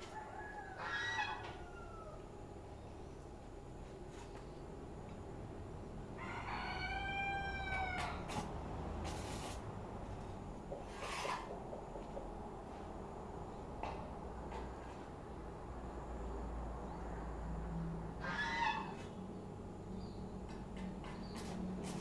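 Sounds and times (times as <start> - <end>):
rooster crowing: 0.0 - 2.4, 6.2 - 8.4, 18.2 - 19.0
short noisy scrapes or knocks: 10.8 - 11.6.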